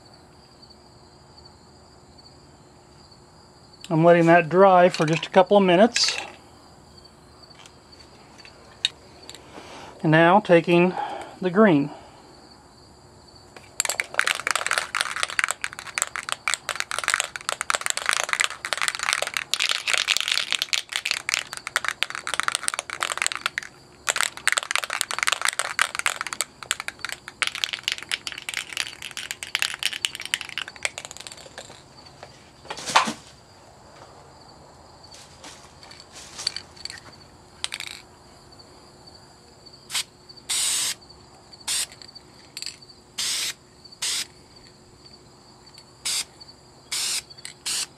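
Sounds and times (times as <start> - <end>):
spray can mixing ball rattling: 13.7 - 31.9, 37.6 - 38.0, 41.7 - 44.3, 46.0 - 46.3, 46.9 - 47.9
spray paint hissing: 14.0 - 31.8, 39.9 - 41.0, 41.6 - 42.1, 43.2 - 44.3, 46.0 - 46.3, 46.9 - 47.9.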